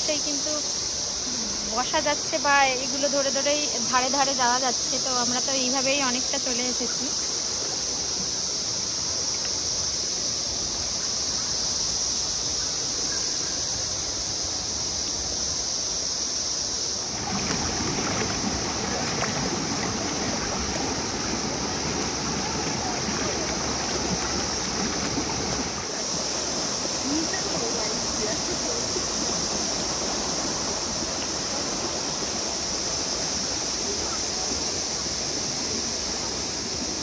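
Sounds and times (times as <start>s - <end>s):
high insect chorus: 0.0s - 37.0s
river water rushing over rocks: 15.8s - 37.0s.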